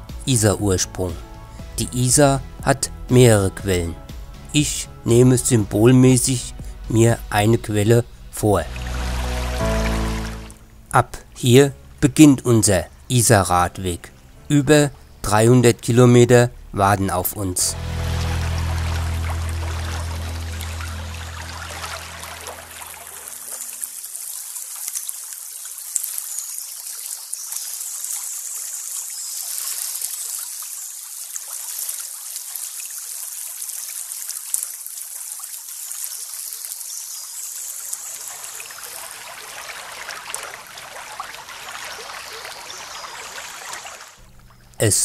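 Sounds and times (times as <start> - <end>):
stream trickling over stones: 8.2 - 10.9, 18.0 - 44.9.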